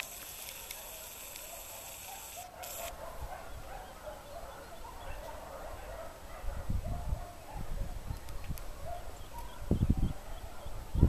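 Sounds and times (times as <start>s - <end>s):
dogs barking faintly: 0.5s - 11.0s
wind on microphone: 6.4s - 11.0s.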